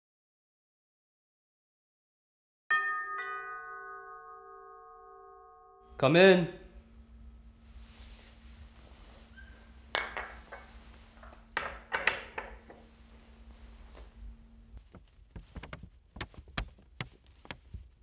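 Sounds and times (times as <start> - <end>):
teacup clinking on saucer: 9.9 - 12.8.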